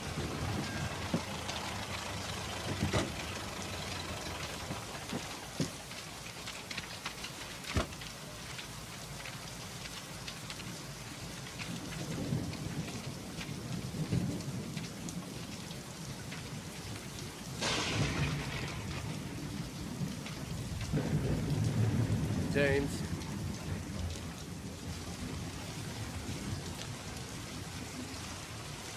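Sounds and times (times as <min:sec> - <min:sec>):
loud thunderclap: 0:00.0 - 0:05.8, 0:17.6 - 0:24.1
sharp crack: 0:00.0 - 0:09.3, 0:17.6 - 0:21.0
heavy rain pouring: 0:00.0 - 0:28.9
thunder rumbling: 0:00.0 - 0:28.9.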